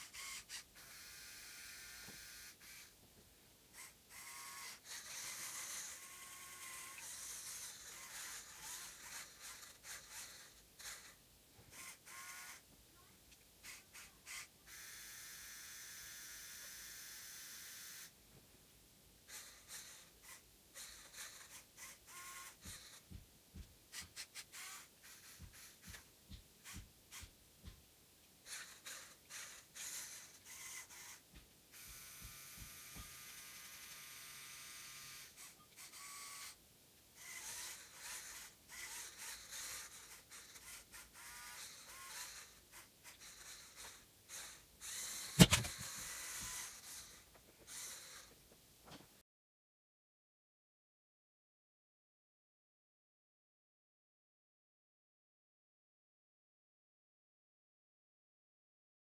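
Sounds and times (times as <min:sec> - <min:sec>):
small electric motors whining: 0:00.0 - 0:03.0, 0:03.8 - 0:12.6, 0:13.6 - 0:18.2, 0:19.3 - 0:23.2, 0:23.9 - 0:27.3, 0:28.4 - 0:36.6, 0:37.2 - 0:48.3
gears clicking and rattling: 0:37.2 - 0:47.1.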